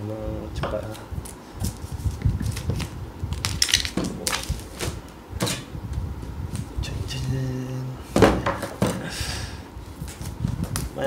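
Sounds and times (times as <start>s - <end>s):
plastic film crackling and tearing: 2.4s - 4.8s.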